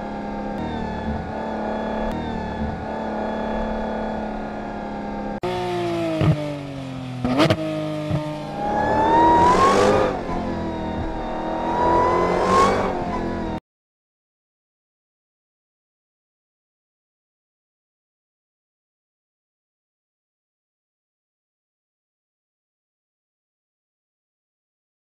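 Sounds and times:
sports car engine revving: 0.0 - 13.6.

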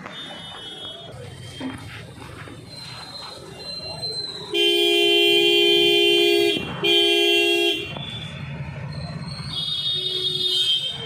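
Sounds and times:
vehicle horn honking: 4.5 - 8.0, 9.6 - 11.0.

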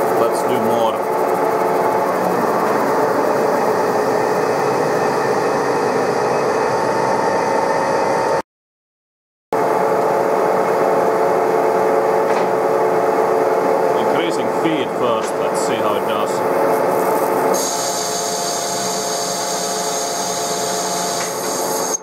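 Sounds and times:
lathe machine hum: 0.0 - 8.4, 9.6 - 22.0
metal cutting hiss: 15.5 - 22.0.

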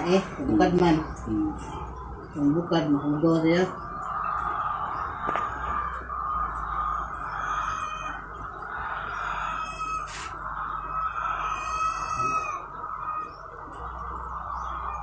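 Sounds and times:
chickens calling: 0.0 - 15.0
steady high hum: 0.0 - 15.0
rooster crowing: 4.1 - 15.0.

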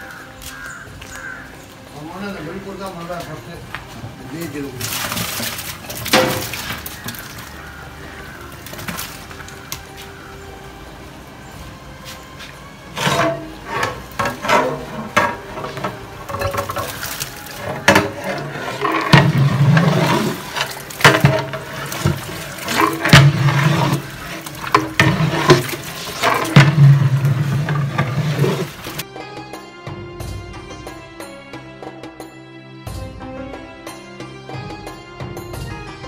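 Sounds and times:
water pouring into pot: 4.8 - 7.6, 13.1 - 29.0.

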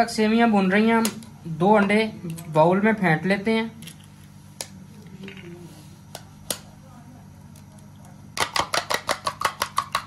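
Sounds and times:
egg cracking on bowl: 8.3 - 10.0
fork beating eggs in bowl: 8.4 - 10.0.

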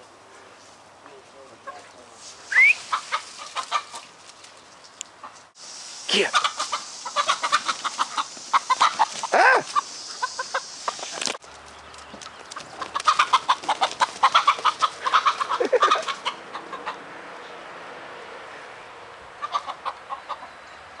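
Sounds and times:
chicken squawk: 2.5 - 4.0, 6.2 - 11.0, 13.0 - 17.0, 19.4 - 20.5
chickens clucking excitedly: 2.8 - 4.2, 6.1 - 11.4, 12.5 - 17.1, 19.4 - 20.6.

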